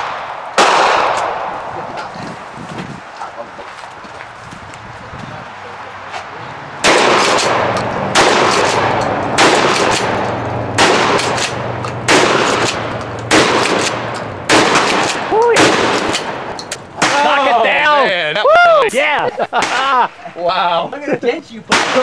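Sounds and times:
pump-action shotgun blasts: 0.0 - 1.7, 6.8 - 17.3, 21.7 - 22.0
echoing decay of gunshots: 0.0 - 2.0, 6.8 - 17.4, 21.7 - 22.0.

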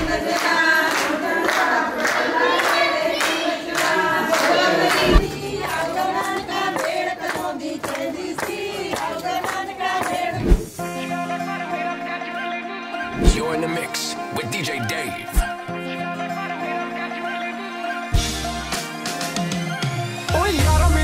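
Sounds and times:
clapping over a beat: 0.0 - 10.3
women singing a folk song: 0.0 - 13.5.

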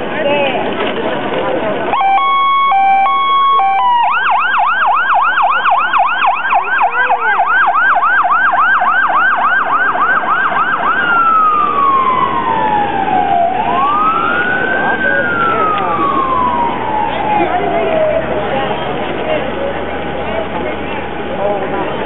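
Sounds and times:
electronic siren: 1.9 - 17.7.

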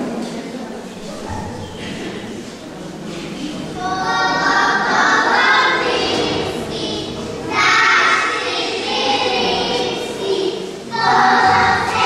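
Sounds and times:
children singing in unison: 3.6 - 12.0.

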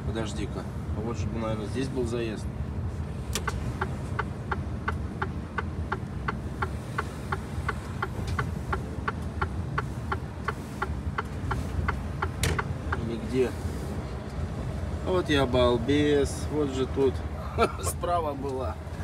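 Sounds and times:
diesel engine drone: 0.0 - 19.0
turn signal ticking: 3.2 - 13.5.

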